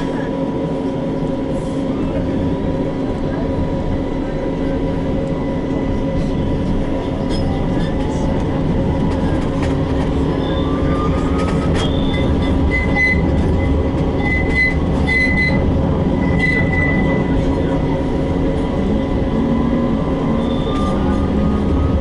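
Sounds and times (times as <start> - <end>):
tram rumble with motor whine: 0.0 - 22.0
wheels squealing: 10.3 - 15.6, 16.2 - 17.4, 20.1 - 22.0.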